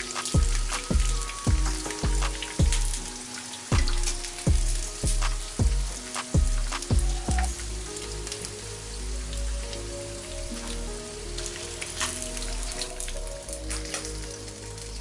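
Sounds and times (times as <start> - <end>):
background music: 0.0 - 15.0
hot oil sizzling and popping: 0.0 - 15.0
deep drum beats: 0.2 - 3.0, 3.7 - 7.7.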